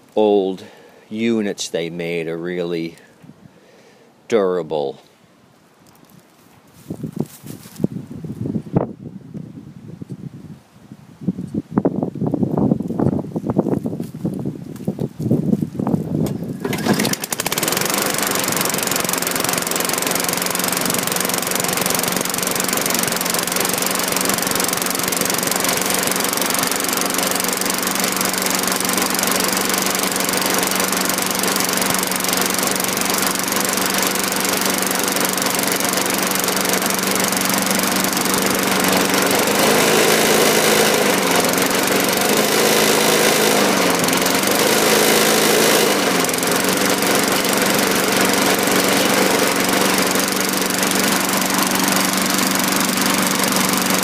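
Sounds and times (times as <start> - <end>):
lawn mower engine running: 16.2 - 54.0.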